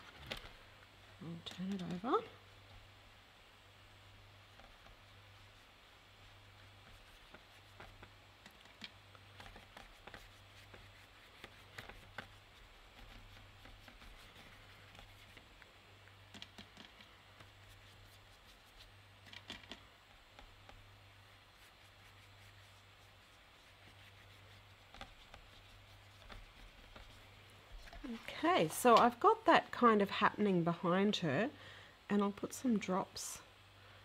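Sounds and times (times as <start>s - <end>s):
faint low hum: 0.0s - 34.0s
paintbrush taps and strokes on paper: 6.2s - 28.1s.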